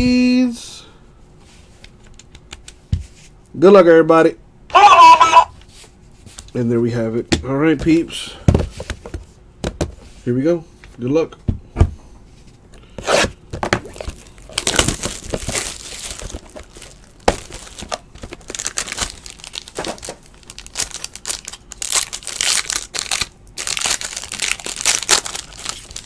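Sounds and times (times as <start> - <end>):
plastic wrapping crinkling and tearing: 13.8 - 26.0.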